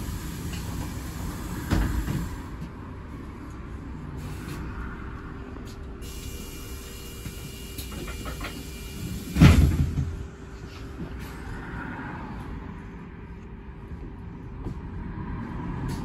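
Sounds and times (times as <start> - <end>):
bus doors shutting with thud: 0.0 - 2.8, 6.0 - 10.4
bus engine humming: 0.0 - 16.0
short hiss of doors: 0.1 - 2.5, 6.0 - 10.0.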